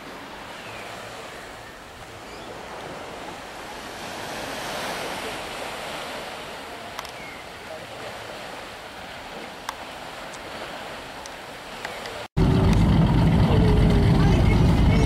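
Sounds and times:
waves washing onto beach: 0.0 - 15.0
wind buffeting microphone: 12.4 - 15.0.

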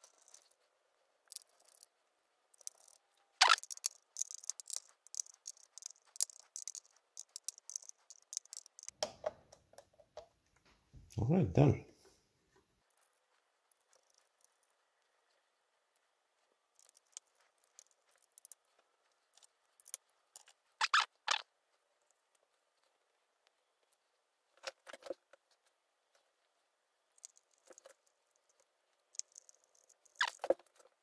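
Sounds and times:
small tools clicking and tapping: 0.0 - 0.6, 1.3 - 1.9, 2.5 - 10.3, 13.7 - 14.8, 16.7 - 20.6, 27.2 - 31.0.

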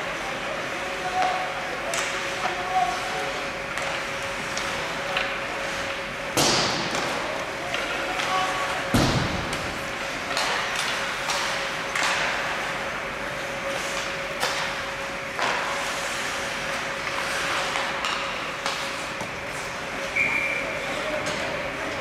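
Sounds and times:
hockey sticks and puck knocking: 3.8 - 12.6, 15.4 - 16.0, 17.0 - 19.7.

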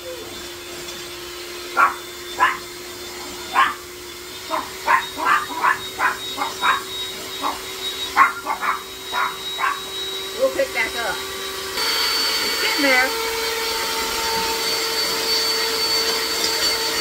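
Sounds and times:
electric hand mixer humming: 0.0 - 17.0
small dogs barking: 1.6 - 10.1.

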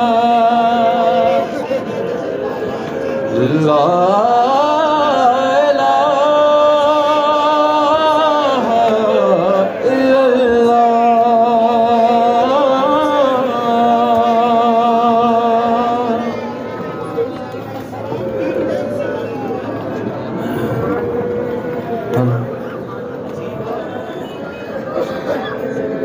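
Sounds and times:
man chanting through loudspeaker: 0.0 - 16.8, 20.8 - 24.1.

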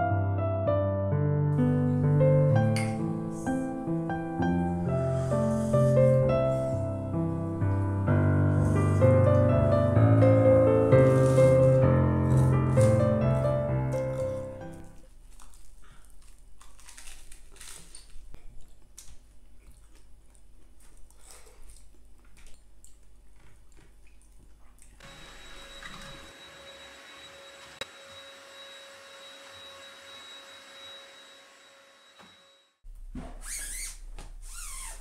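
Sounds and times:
stick vacuum cleaner running: 25.0 - 32.8.

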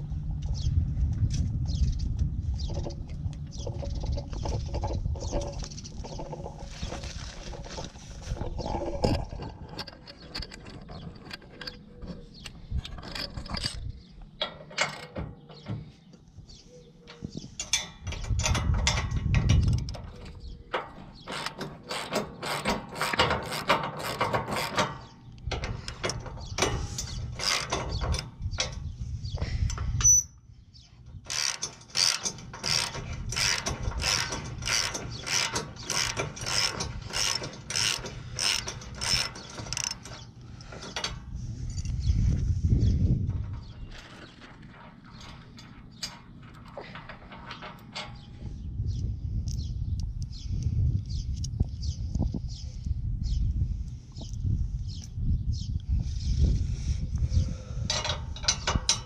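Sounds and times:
hand ratchet clicking: 20.8 - 28.8, 31.2 - 41.2.

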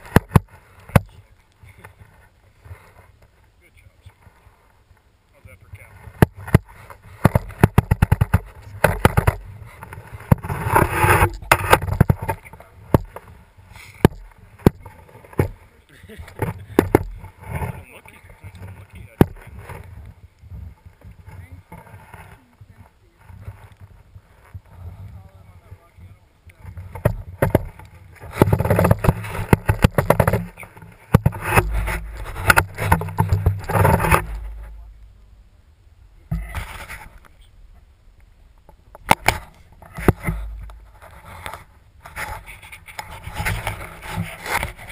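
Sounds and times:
clothing rubbing on microphone: 0.0 - 35.2, 36.3 - 37.6, 39.0 - 44.9
scraping rustle: 0.0 - 35.3, 36.2 - 37.8, 38.7 - 44.9
camera knocks and clicks: 6.2 - 13.2, 26.9 - 34.7, 39.0 - 40.8
rapid sharp clicks and knocks: 26.7 - 34.7.

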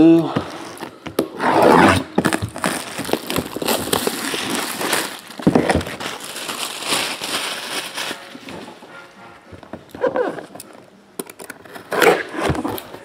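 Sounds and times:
plastic wrap crinkling: 2.0 - 8.9.

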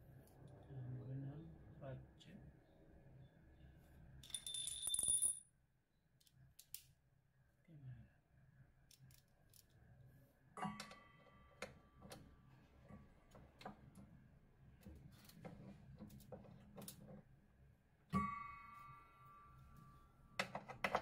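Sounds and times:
ratchet wrench clinking and rattling: 4.2 - 5.4
ringing metal clink: 4.2 - 5.4.

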